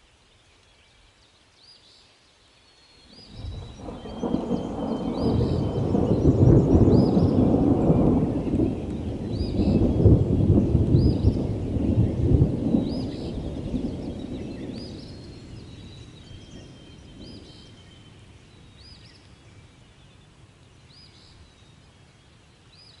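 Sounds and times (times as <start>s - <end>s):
thunder rumbling: 3.1s - 17.7s.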